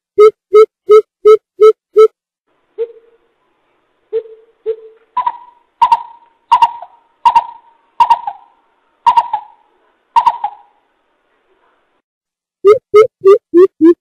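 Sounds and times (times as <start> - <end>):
coucal hooting call: 4.1 - 10.8.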